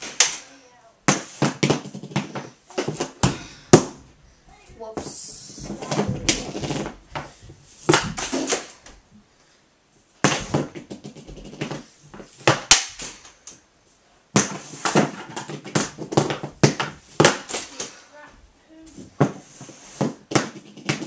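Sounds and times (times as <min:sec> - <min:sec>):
hockey pucks clacking: 0:04.8 - 0:08.8, 0:14.4 - 0:18.0, 0:20.0 - 0:21.0.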